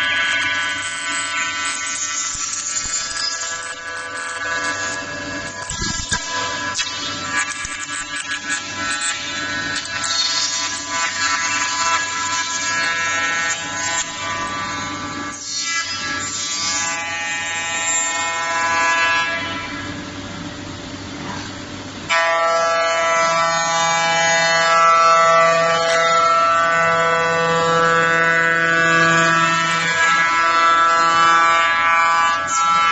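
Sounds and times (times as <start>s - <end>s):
router spindle whining: 0.0s - 14.6s
router cutting wood: 0.0s - 19.7s, 22.1s - 32.9s.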